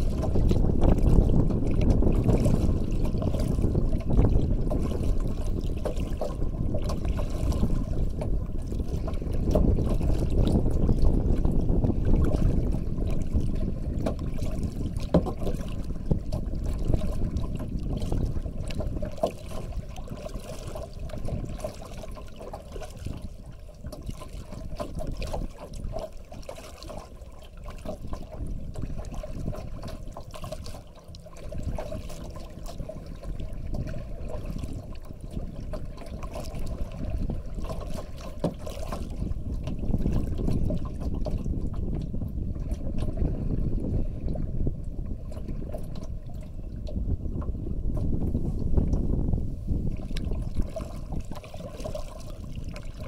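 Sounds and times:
water drips and splashes: 0:00.0 - 0:11.4, 0:12.0 - 0:41.6
water lapping against kayak hull: 0:00.0 - 0:53.0.

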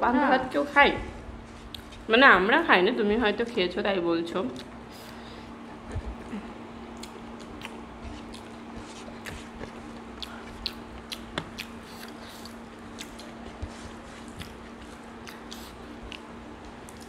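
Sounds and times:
faint steady hum: 0:00.0 - 0:17.0
chewing and lip smacks: 0:01.7 - 0:02.0, 0:04.5 - 0:05.1, 0:05.8 - 0:17.0
fingers squishing food: 0:06.9 - 0:17.0.

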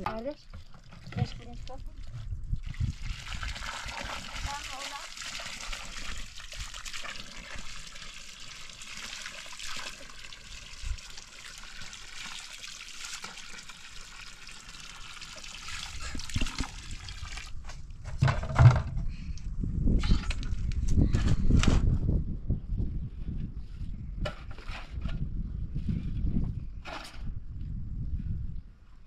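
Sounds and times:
water trickling: 0:00.4 - 0:17.6.

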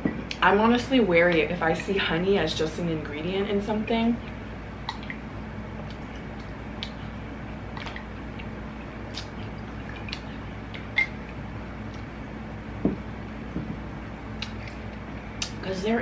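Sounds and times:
steady low hum: 0:00.0 - 0:16.0
chewing mouth clicks and smacks: 0:05.8 - 0:07.0, 0:09.1 - 0:12.1, 0:14.4 - 0:15.6.

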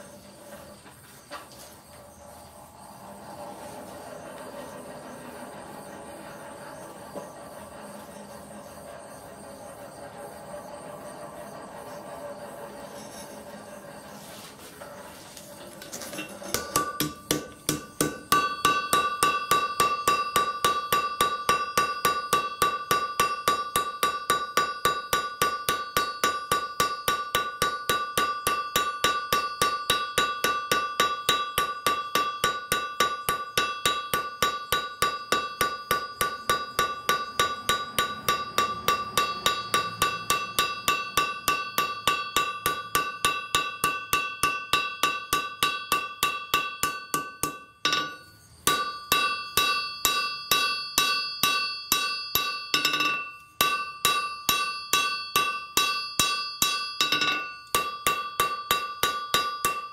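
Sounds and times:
anvil ringing: 0:16.2 - 0:59.9
hammer blows on anvil: 0:16.4 - 0:59.9.

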